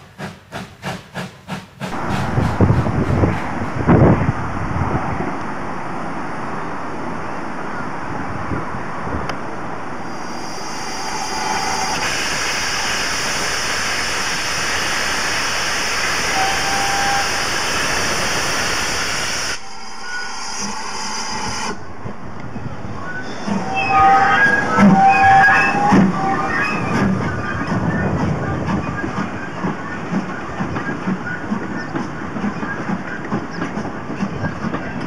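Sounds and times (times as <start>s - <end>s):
locomotive hissing steam: 0.0s - 5.0s, 10.0s - 21.9s
wind buffeting microphone: 1.9s - 10.1s, 26.8s - 35.0s.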